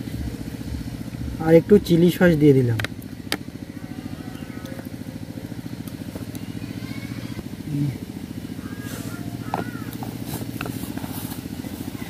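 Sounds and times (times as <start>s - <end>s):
engine chugging: 0.0s - 12.0s.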